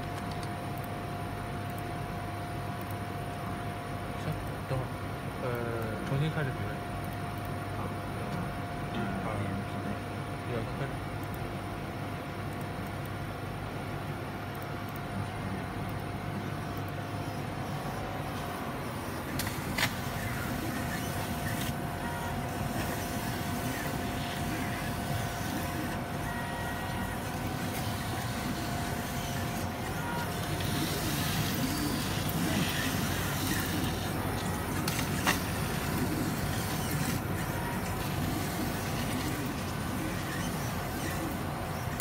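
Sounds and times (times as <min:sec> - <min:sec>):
sharp clicks: 0:00.0 - 0:00.9
machine fans humming: 0:00.0 - 0:42.0.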